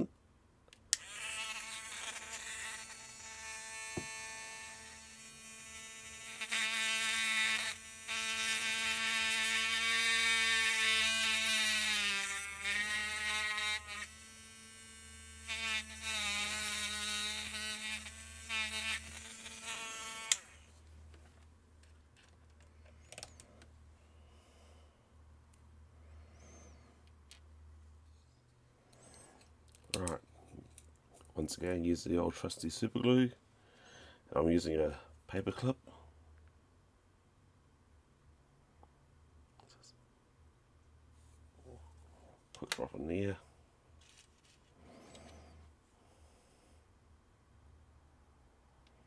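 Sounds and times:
electric drill whining: 0.9s - 12.4s.

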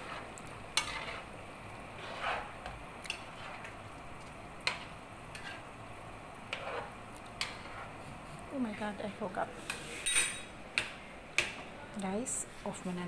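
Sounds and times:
spoon stirring curry: 0.0s - 5.7s, 6.4s - 8.0s.

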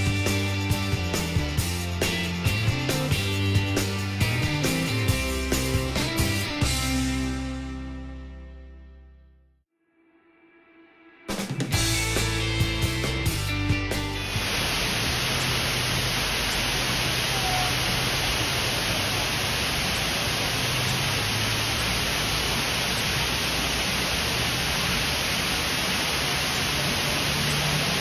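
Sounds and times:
background music with a beat: 0.0s - 8.2s, 11.2s - 14.4s
waterfall rushing: 14.1s - 28.0s.

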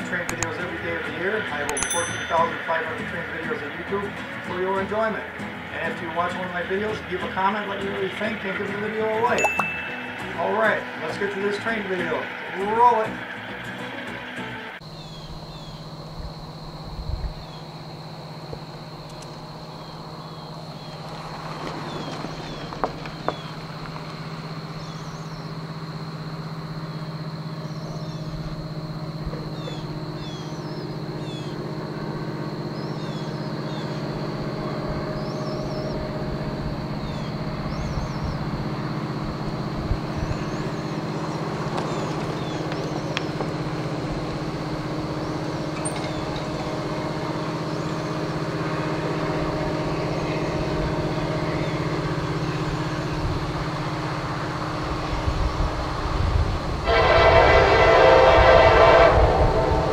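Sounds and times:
diesel locomotive engine running: 0.0s - 59.9s
sharp clicks: 0.3s - 0.5s
birds chirping: 8.9s - 13.8s, 14.8s - 16.0s, 19.0s - 26.0s, 26.8s - 53.9s.

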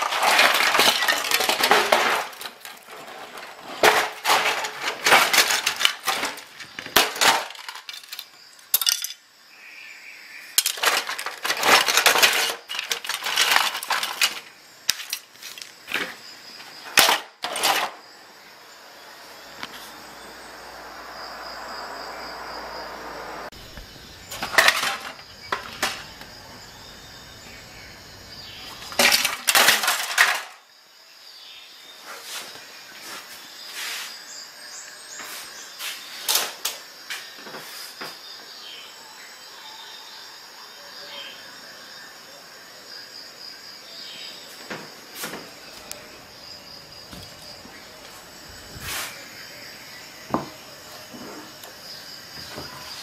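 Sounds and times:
printer parts clattering: 0.0s - 9.2s, 10.6s - 16.2s, 16.9s - 18.0s, 24.2s - 26.6s, 28.7s - 30.6s
insect chirring: 0.0s - 37.4s, 38.2s - 53.0s
steady hiss: 47.3s - 50.2s.

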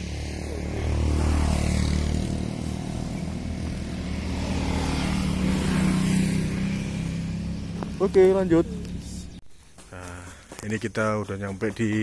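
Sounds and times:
motorcycle engine running: 0.0s - 9.4s
wind and road noise: 0.0s - 12.0s.

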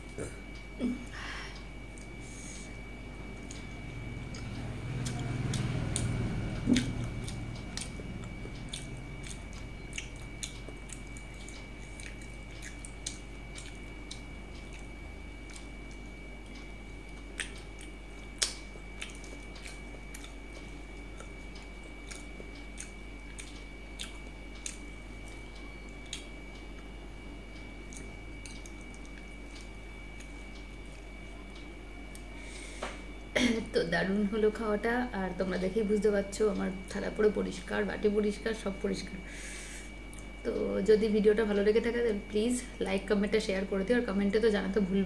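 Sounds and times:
person chewing food: 3.3s - 33.1s, 39.8s - 40.4s.

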